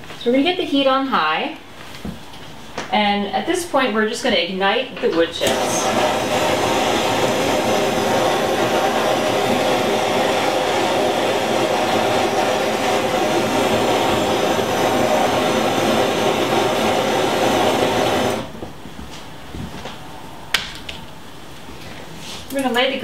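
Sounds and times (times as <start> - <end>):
torch flame hissing: 5.4 - 18.6.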